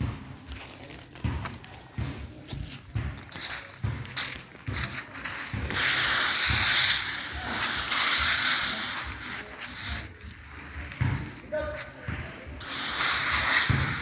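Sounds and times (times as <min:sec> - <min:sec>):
footsteps thudding: 0:00.0 - 0:08.4, 0:09.0 - 0:12.7
grains sliding with dry rustle: 0:03.3 - 0:14.0.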